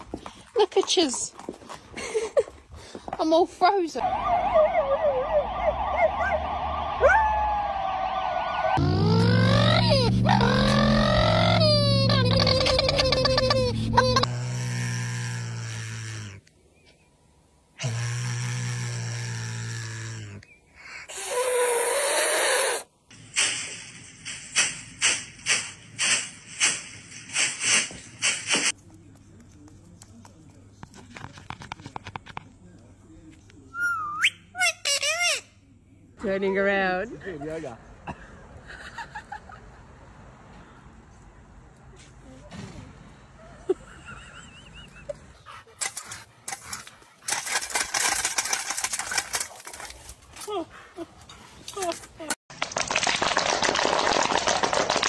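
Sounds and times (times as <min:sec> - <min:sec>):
emergency vehicle siren: 0:04.0 - 0:11.5.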